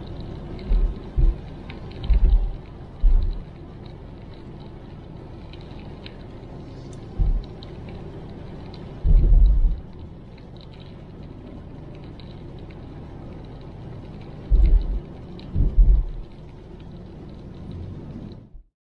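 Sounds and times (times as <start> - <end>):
raindrops ticking on windscreen: 0.0 - 18.7
road and tyre noise in car: 0.0 - 18.7
deep low thuds: 0.7 - 3.4, 7.2 - 7.5, 9.0 - 9.8, 14.5 - 16.2.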